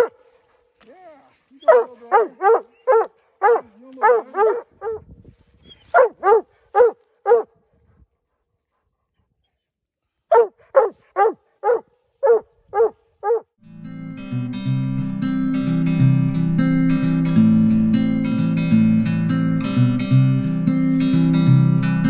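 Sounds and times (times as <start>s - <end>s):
dog barking sharply: 1.6s - 5.0s, 5.9s - 7.5s, 10.3s - 13.5s.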